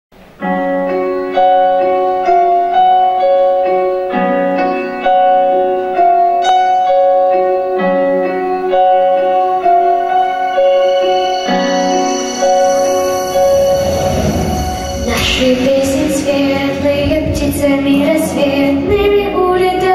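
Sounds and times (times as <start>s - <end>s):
piano melody over chords: 0.2s - 19.9s.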